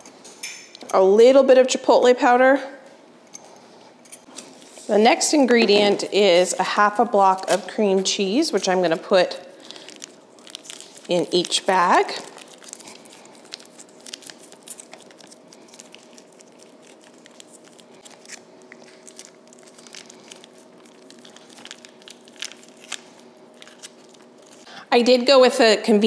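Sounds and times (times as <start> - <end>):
faint hum: 0.0 - 26.0
foil wrapper crinkling: 6.0 - 24.7.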